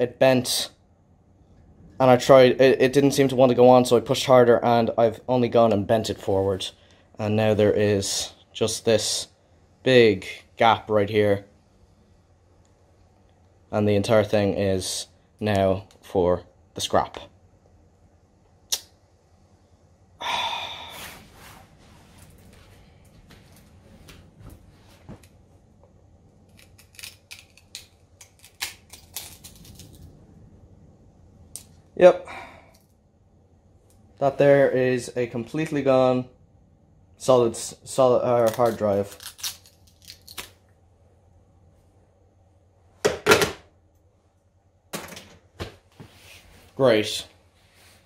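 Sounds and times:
low steady hum: 0:00.0 - 0:48.0.

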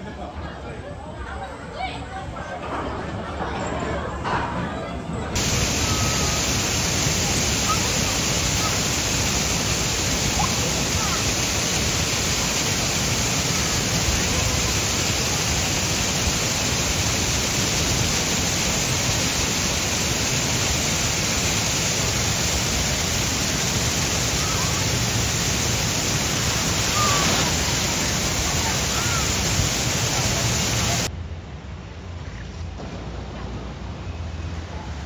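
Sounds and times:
water pouring down a chute: 0:05.4 - 0:31.1
boat splashing down: 0:24.3 - 0:31.1.

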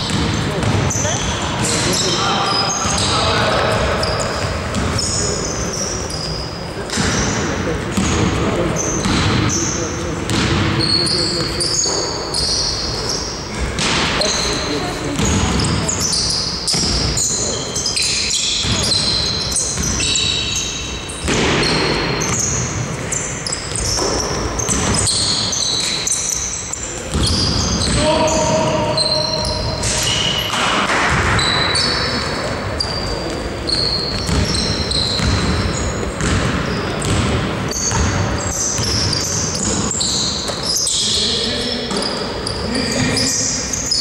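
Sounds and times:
basketball bouncing: 0:00.0 - 0:01.8, 0:03.7 - 0:05.2, 0:06.9 - 0:08.4, 0:09.0 - 0:09.6, 0:10.3 - 0:10.8, 0:15.1 - 0:17.2, 0:18.6 - 0:20.3, 0:21.2 - 0:26.0, 0:26.9 - 0:28.5, 0:29.7 - 0:40.6
sneakers squeaking on court floor: 0:00.0 - 0:44.0
players calling out: 0:21.6 - 0:37.2.

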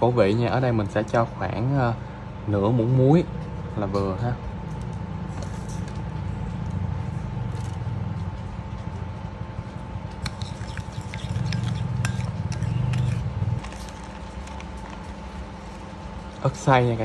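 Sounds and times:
low hum: 0:01.2 - 0:16.7
metal spoon stirring in ceramic bowl: 0:10.1 - 0:15.2.

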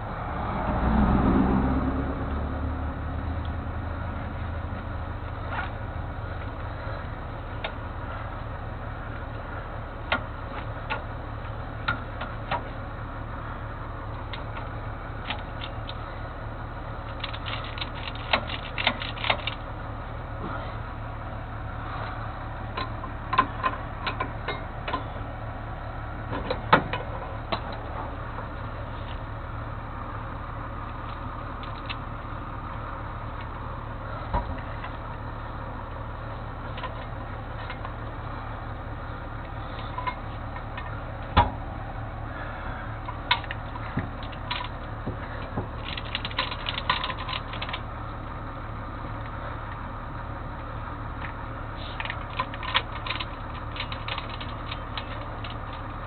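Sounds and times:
truck engine running: 0:00.0 - 0:56.0
sharp clicks and knocks: 0:10.1 - 0:11.1, 0:17.1 - 0:19.6, 0:22.8 - 0:25.1, 0:26.3 - 0:28.5, 0:43.0 - 0:47.8, 0:51.2 - 0:56.0.

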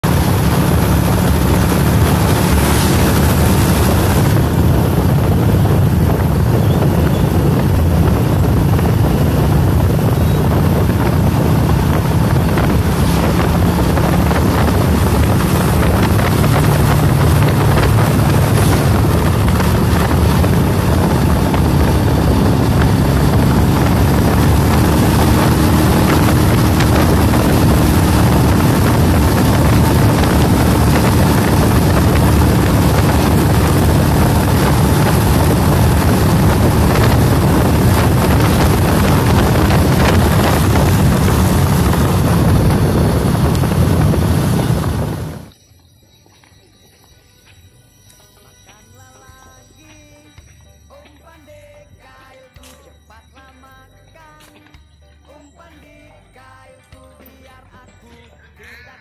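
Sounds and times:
motorcycle engine running: 0:00.0 - 0:45.5
wind buffeting microphone: 0:00.0 - 0:45.5.

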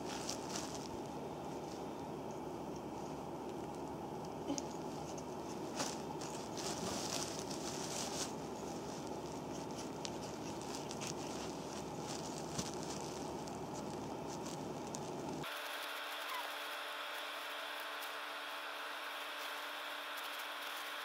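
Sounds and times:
steady hiss: 0:05.5 - 0:21.0.

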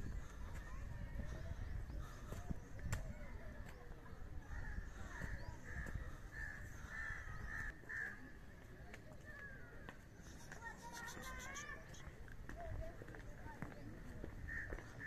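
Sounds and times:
crow cawing: 0:04.5 - 0:08.2, 0:14.4 - 0:15.0.

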